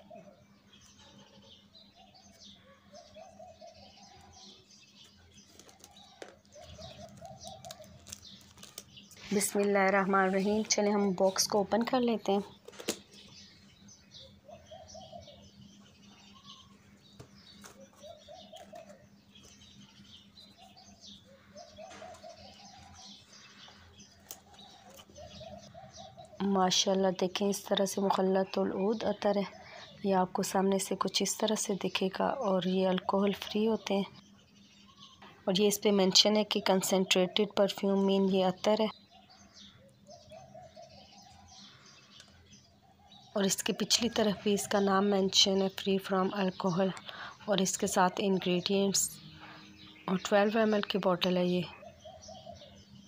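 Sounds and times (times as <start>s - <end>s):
birds chirping: 0.0s - 53.0s
cardboard parcel rustling: 5.0s - 10.8s.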